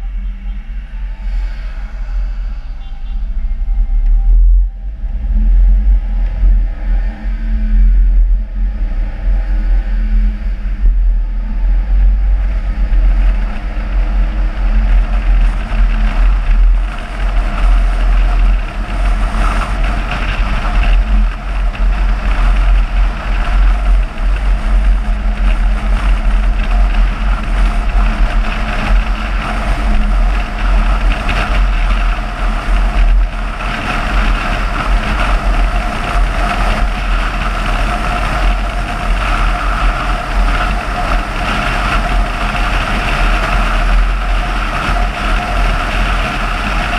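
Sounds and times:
car road and engine noise: 0.0 - 46.9
wind buffeting microphone: 0.0 - 46.9.

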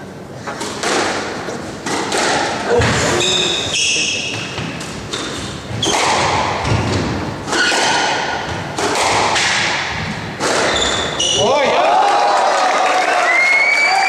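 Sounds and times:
squash ball hitting rackets and walls: 0.5 - 11.6
sneakers squeaking on wooden floor: 2.7 - 9.2, 10.0 - 11.6.

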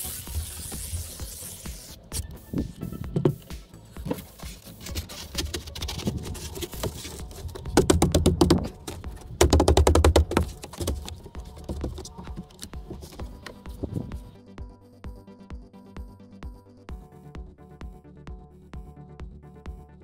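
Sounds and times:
foam board scraping: 0.0 - 14.3.

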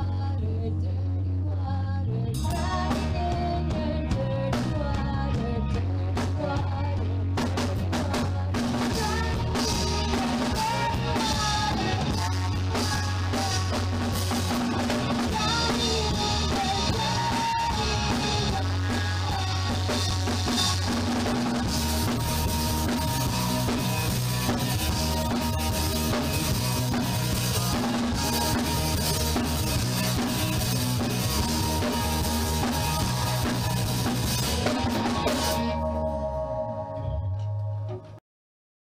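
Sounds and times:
rock band playing: 2.3 - 38.2
bass drum: 2.4 - 36.0.

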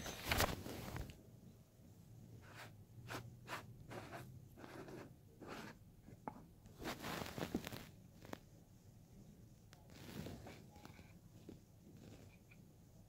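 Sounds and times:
handling rustles and scrapes: 0.0 - 1.2, 2.4 - 8.6, 9.6 - 12.7.

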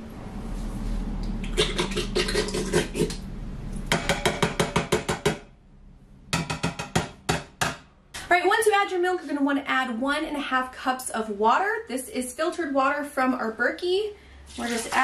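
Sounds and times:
can knocking on metal pot: 3.9 - 5.5, 6.4 - 7.8.

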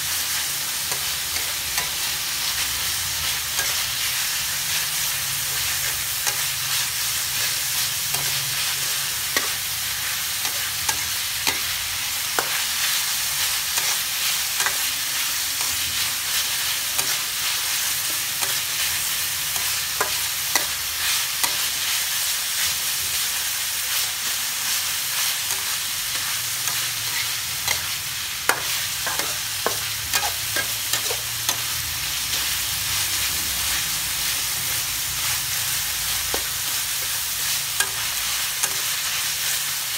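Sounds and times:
meat sizzling in a wok: 0.0 - 39.9
metal spatula scraping a pan: 25.4 - 39.6.

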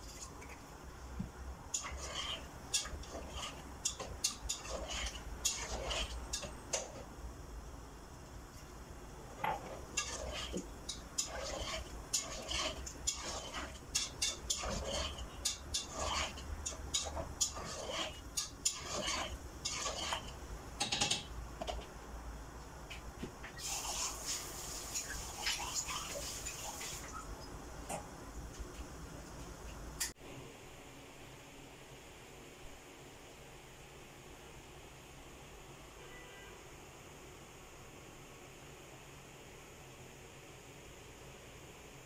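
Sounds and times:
utensil scraping a pot: 1.7 - 7.1, 9.4 - 20.4.

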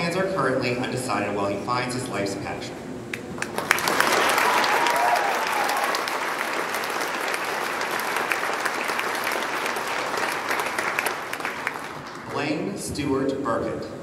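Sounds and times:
audience applauding: 3.4 - 12.4.

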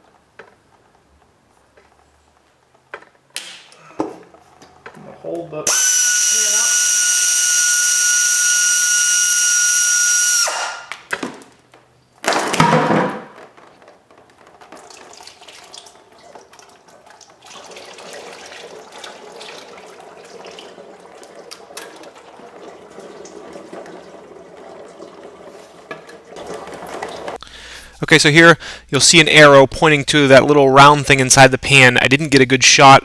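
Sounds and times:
air ratchet whirring: 5.7 - 10.9
fluid pouring into a pan: 14.6 - 27.2.

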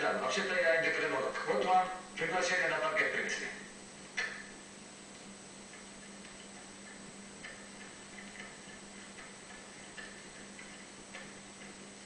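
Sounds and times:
steady low hum: 0.0 - 12.0
faint ticks: 5.1 - 12.0.

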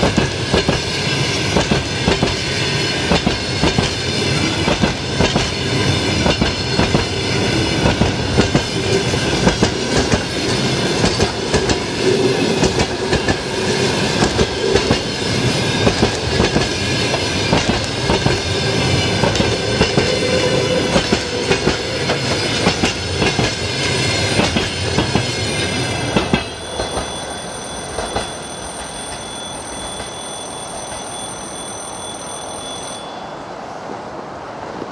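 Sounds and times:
train wheels clattering over rails: 0.0 - 27.3
high steady ringing tones: 23.7 - 33.6.

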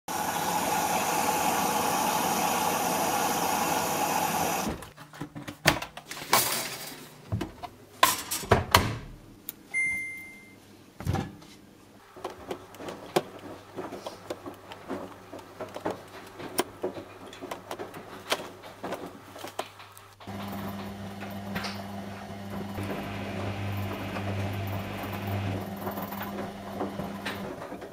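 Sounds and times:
short electronic beep: 9.8 - 10.6
clicks and knocks of handling: 12.2 - 20.4.

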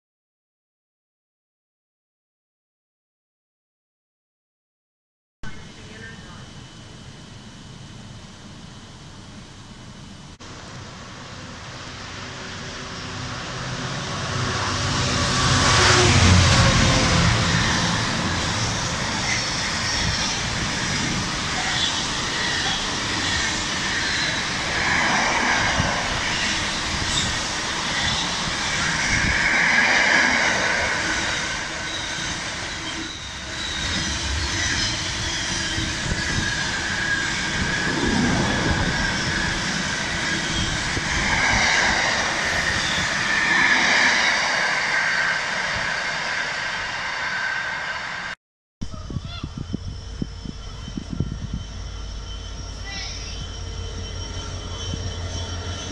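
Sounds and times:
freight train rumbling past: 5.4 - 55.9
high wheel squeal: 14.5 - 55.9.

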